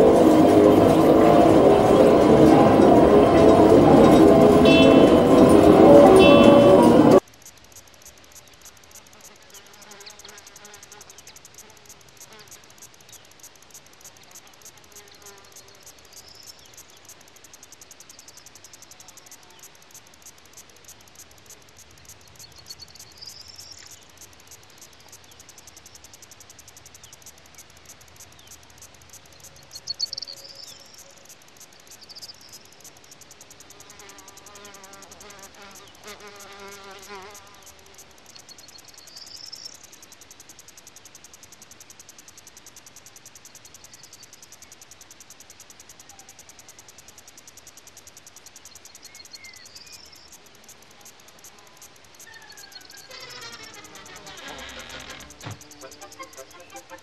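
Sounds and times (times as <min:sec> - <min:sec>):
faint pitched tones: 0:00.0 - 0:07.2
fast high ticking: 0:10.5 - 0:57.0.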